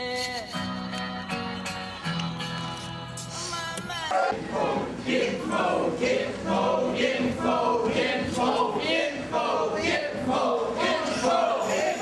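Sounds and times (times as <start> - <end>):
group of men singing: 4.1 - 12.0.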